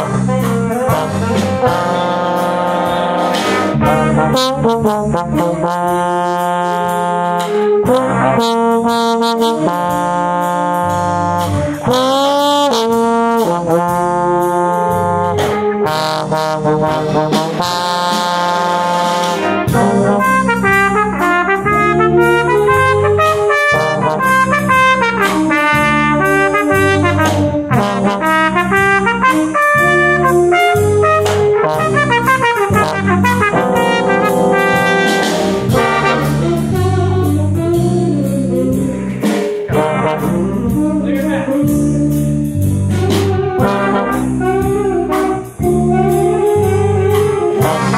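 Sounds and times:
jazz band playing: 0.0s - 47.9s
trombone: 0.0s - 47.9s.

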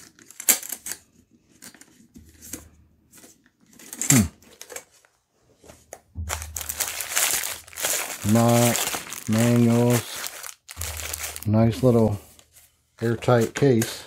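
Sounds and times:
plastic packaging crinkling: 6.3s - 14.0s.

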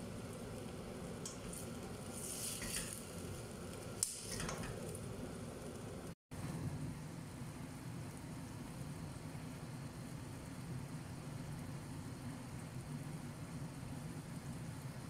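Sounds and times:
food sizzling in a frying pan: 0.0s - 6.2s
steady low hum: 0.0s - 15.0s
spatula stirring: 1.4s - 3.4s.

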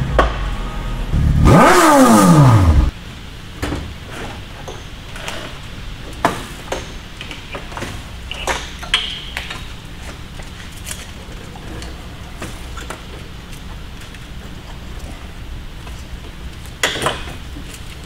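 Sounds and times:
steady low hum: 0.0s - 18.0s
hand tools clicking and knocking: 6.1s - 12.0s, 16.6s - 18.0s.

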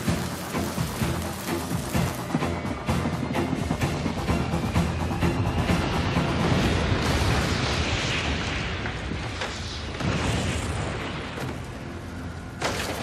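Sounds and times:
long rumbling explosion: 5.7s - 12.6s.

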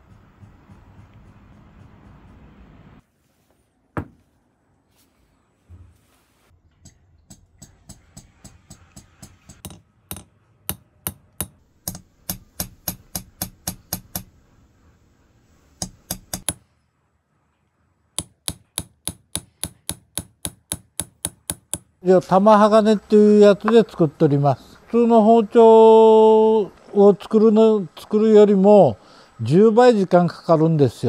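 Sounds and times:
hammer tapping steel chisel: 6.8s - 14.4s, 15.8s - 16.6s, 18.2s - 22.0s.

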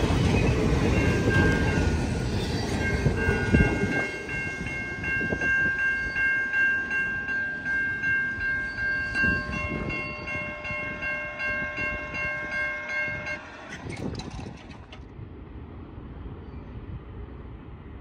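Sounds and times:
level-crossing bell ringing: 2.8s - 13.5s
train wheels clacking over rail joints: 13.2s - 15.1s.

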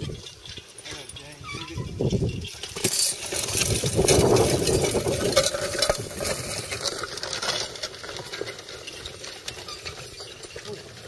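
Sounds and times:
chains and harness rattling: 0.0s - 11.0s
disc blades scraping soil: 1.2s - 11.0s.

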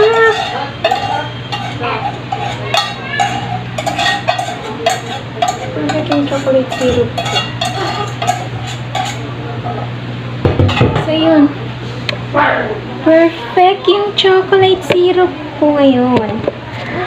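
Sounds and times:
utensil scraping inside pot: 0.0s - 9.3s
steady low hum: 0.0s - 17.0s.

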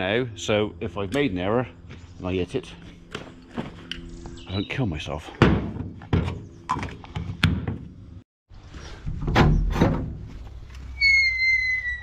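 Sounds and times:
gate high squeal: 11.0s - 12.0s.

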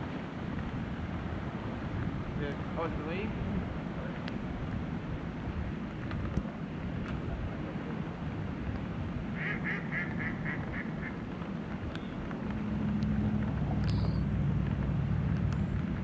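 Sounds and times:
wind: 0.0s - 16.0s
duck quacking: 9.4s - 11.2s
low engine drone: 11.1s - 16.0s.

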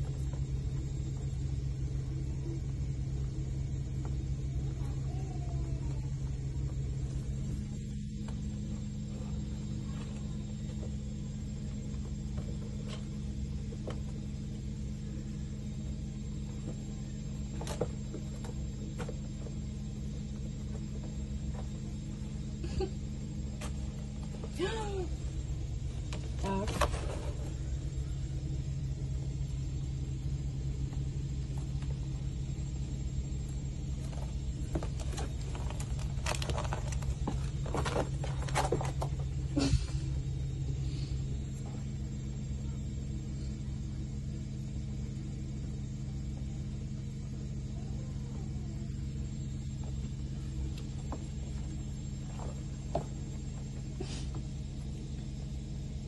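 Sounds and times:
low mechanical hum and rumble: 0.0s - 56.0s.

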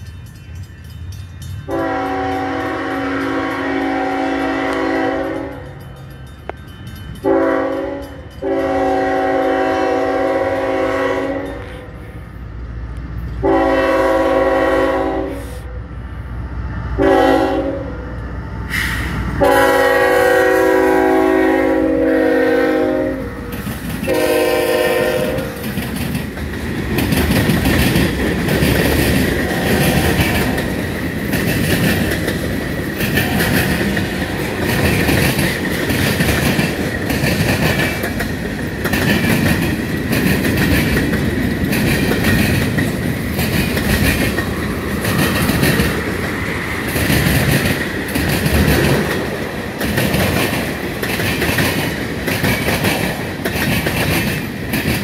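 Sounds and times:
clickety-clack of rolling cars: 0.0s - 11.9s, 22.3s - 55.0s
rumble of freight cars: 0.0s - 55.0s
train air horn blasts: 1.7s - 5.8s, 7.2s - 12.2s, 13.4s - 15.9s, 17.0s - 18.1s, 18.7s - 25.7s, 29.4s - 30.8s, 33.0s - 34.6s.

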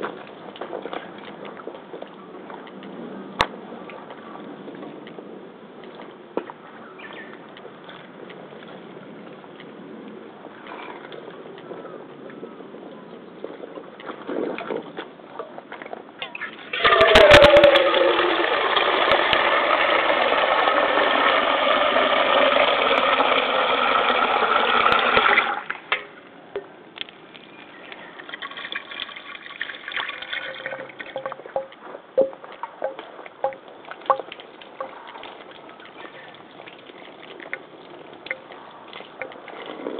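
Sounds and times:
tap water pouring on rubber: 16.6s - 26.0s, 28.2s - 39.9s
water dripping on rubber: 27.9s - 39.8s.

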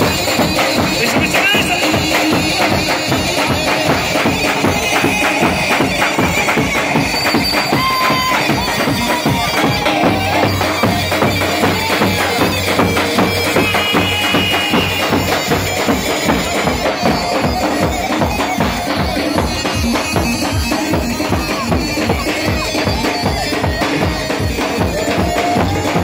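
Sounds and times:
bass drums beating: 0.0s - 26.0s
shrill reedy melody: 0.0s - 26.0s.

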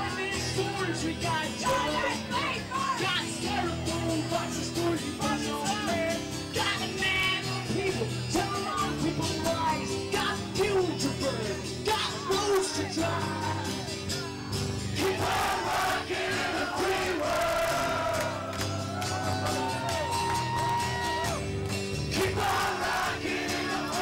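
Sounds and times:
live rock music with singing: 0.0s - 24.0s.

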